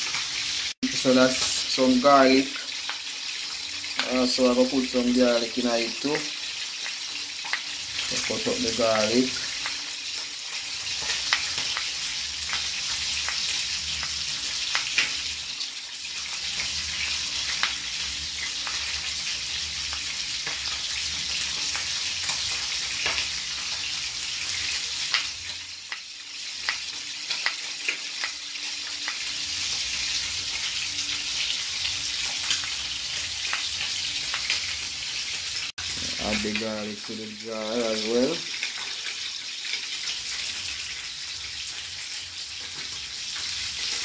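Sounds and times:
frying sizzle: 0.0s - 44.0s.

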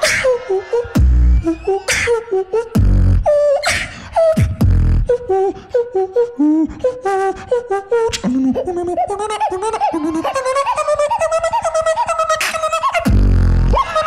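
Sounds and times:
beatboxing into a microphone: 0.0s - 14.0s
hummed melody: 0.0s - 14.0s
deep bass drops: 0.8s - 1.9s, 2.7s - 3.4s, 4.4s - 5.1s, 13.1s - 13.8s.

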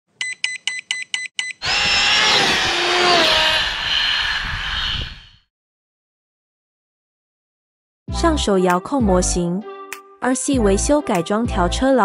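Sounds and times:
motor-like whir: 1.6s - 5.4s.

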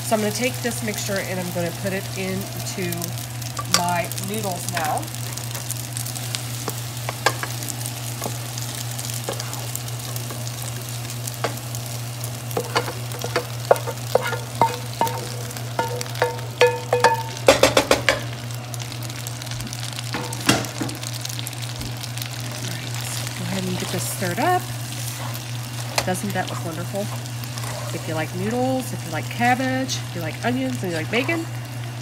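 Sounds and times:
food sizzling in a frying pan: 0.0s - 32.0s
wooden spoon scraping a pan: 9.2s - 10.8s, 12.6s - 16.4s, 22.6s - 28.2s
spoon knocking on metal pans: 12.6s - 18.2s.

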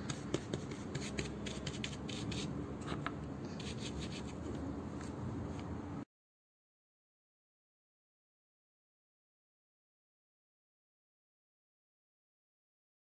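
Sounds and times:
paintbrush scrubbing cardboard: 0.0s - 3.0s, 3.6s - 4.5s.

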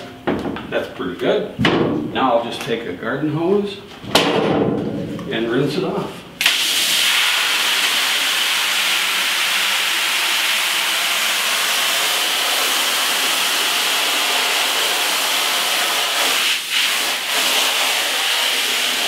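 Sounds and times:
hose nozzle spraying water: 6.4s - 19.0s.

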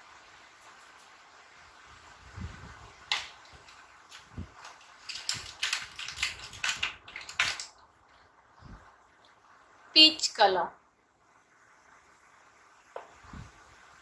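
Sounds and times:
crayons clicking and rattling: 3.0s - 7.9s.

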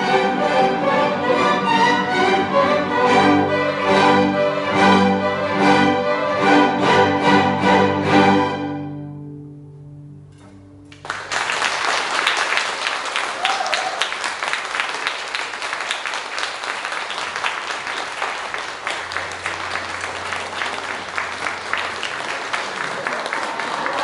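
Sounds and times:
audience applauding: 10.9s - 24.0s.

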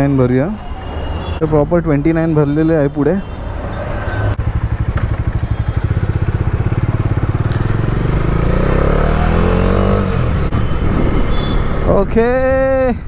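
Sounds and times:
motorcycle engine revving: 4.4s - 11.9s.

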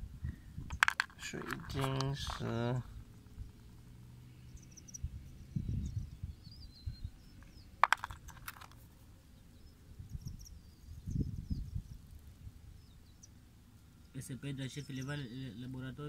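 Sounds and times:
stones clicking together: 0.7s - 2.5s, 7.4s - 8.8s
faint bird chirps: 2.9s - 7.8s, 9.2s - 16.0s.

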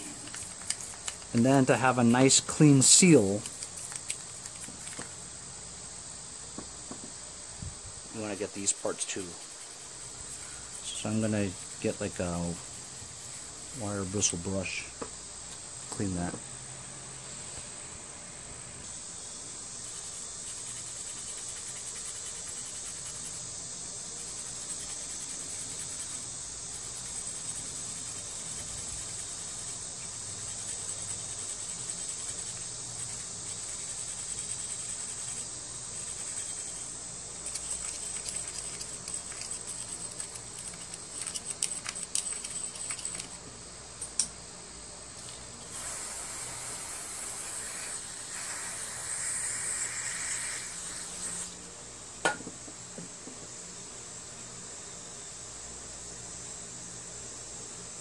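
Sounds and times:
wire brush scrubbing metal parts: 0.0s - 5.0s, 8.1s - 14.8s, 19.9s - 23.4s, 24.2s - 43.4s
hiss: 0.0s - 5.3s, 6.0s - 14.9s, 18.8s - 43.4s, 45.2s - 51.7s
insect chirring: 0.0s - 16.3s, 17.3s - 58.0s.

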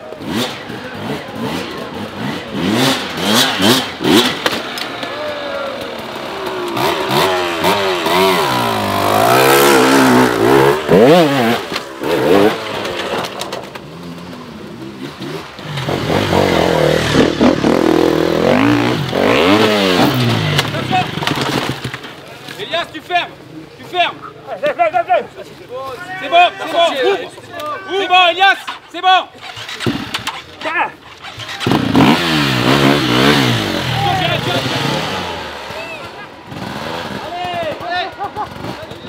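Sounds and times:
dirt bike engines revving: 0.0s - 39.0s.

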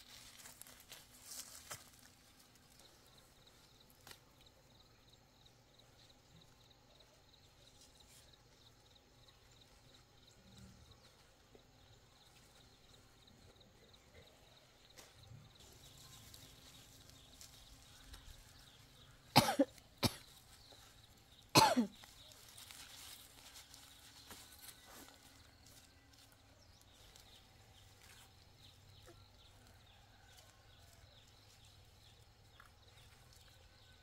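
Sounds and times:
faint background noise: 0.0s - 34.0s
person coughing: 19.3s - 20.2s, 21.5s - 22.0s.

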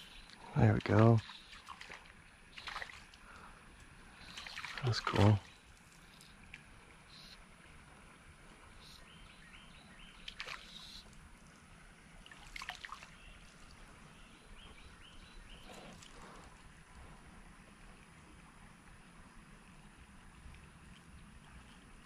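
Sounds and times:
light water sounds: 0.0s - 22.0s
short water splashes: 0.3s - 3.5s, 4.2s - 6.7s, 10.2s - 11.1s, 12.2s - 13.8s.

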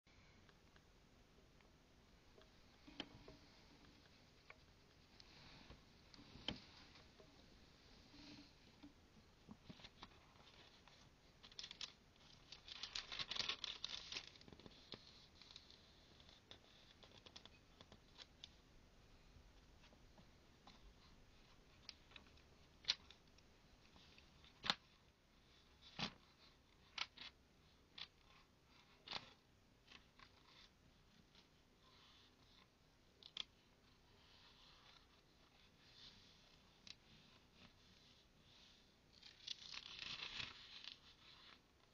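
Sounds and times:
book pages rustling: 9.5s - 18.5s, 28.0s - 41.9s.

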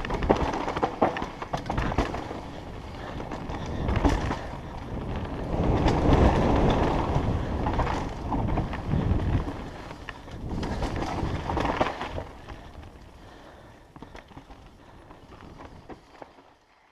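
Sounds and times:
bike clicks and knocks: 0.0s - 16.8s
tyres on dirt and gravel: 0.0s - 16.9s
wind rushing over microphone: 1.6s - 13.1s.

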